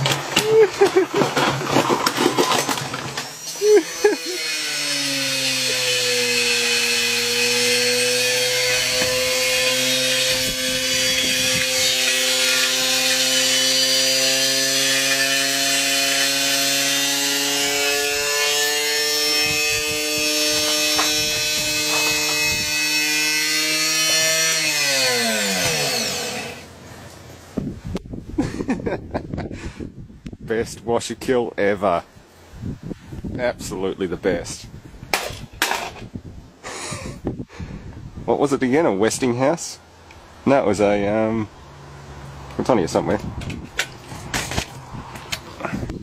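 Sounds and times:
wind buffeting microphone: 0:08.7 - 0:12.1, 0:19.2 - 0:23.2, 0:27.5 - 0:30.9, 0:32.5 - 0:38.9, 0:42.8 - 0:46.0.

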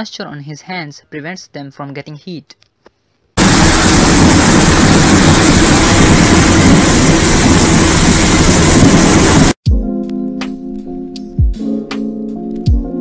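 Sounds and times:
foundry roar: 0:03.4 - 0:09.6.

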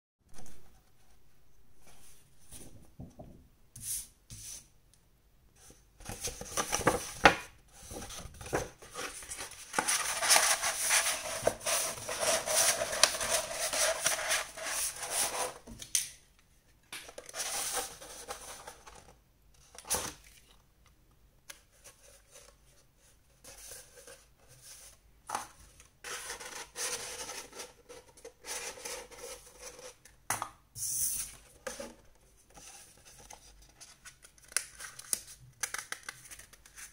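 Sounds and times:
paper rustling and rubbing: 0:06.0 - 0:15.7.

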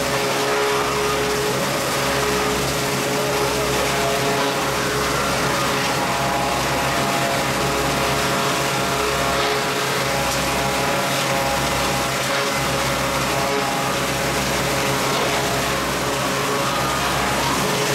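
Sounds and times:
planer machine humming: 0:00.0 - 0:17.9.

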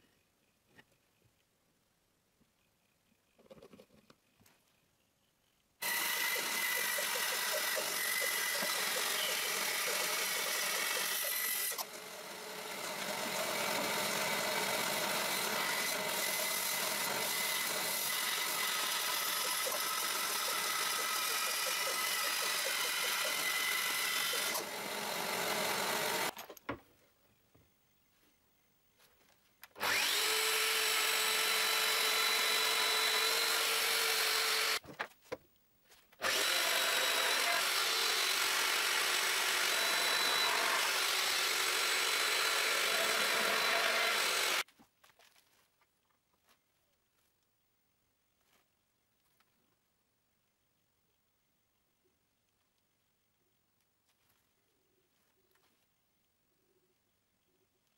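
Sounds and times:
band saw cutting wood: 0:05.8 - 0:26.4, 0:29.8 - 0:34.8, 0:36.2 - 0:44.7
joiner machine humming: 0:36.2 - 0:44.6.

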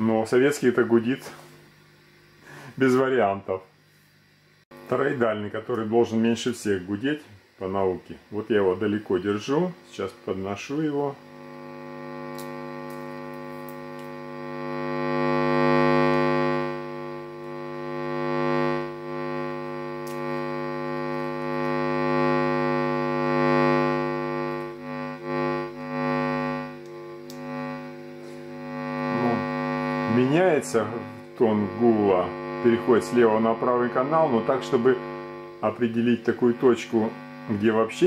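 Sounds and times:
mains hum through speakers: 0:00.0 - 0:38.0.

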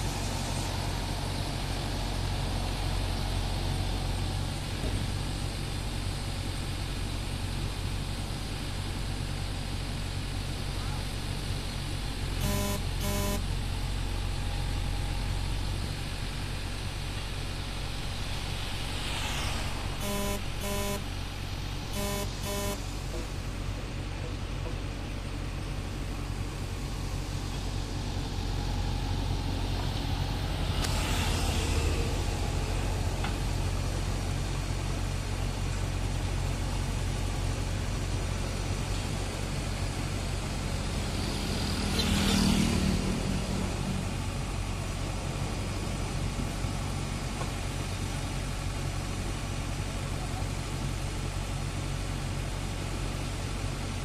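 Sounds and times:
diesel engine running: 0:00.0 - 0:54.0
road traffic passing: 0:00.0 - 0:54.0
vehicle horn short toots: 0:12.4 - 0:13.5, 0:20.0 - 0:21.1, 0:21.9 - 0:22.9.

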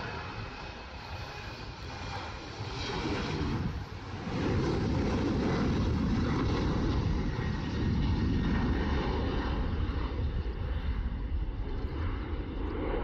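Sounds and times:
jet engines at takeoff: 0:00.0 - 0:13.0.

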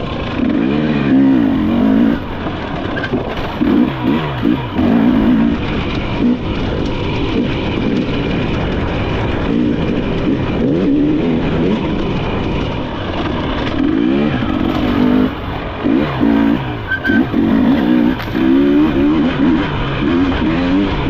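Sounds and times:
dirt bike engine revving: 0:00.0 - 0:21.0.

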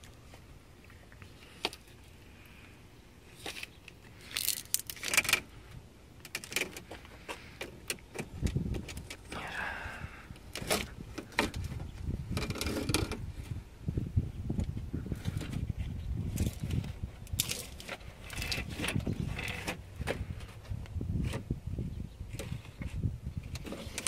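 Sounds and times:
rubber seal pulled off metal frame: 0:04.2 - 0:05.5.

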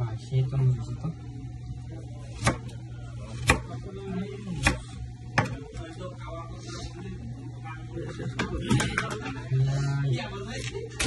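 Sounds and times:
steady low hum: 0:00.0 - 0:11.0
knife chopping on plastic board: 0:02.4 - 0:02.7, 0:03.4 - 0:03.7, 0:05.4 - 0:05.6.

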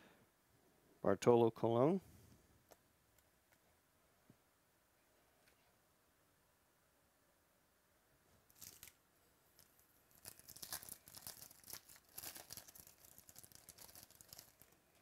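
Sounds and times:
foil wrapper crinkling: 0:08.5 - 0:09.0, 0:09.6 - 0:14.8
foil wrapper tearing: 0:08.5 - 0:09.0, 0:10.1 - 0:14.8.

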